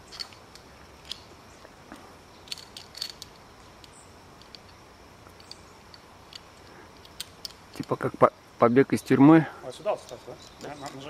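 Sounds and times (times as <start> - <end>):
carabiners clicking on steel cable: 0.0 - 1.7, 2.4 - 8.2, 9.8 - 11.0.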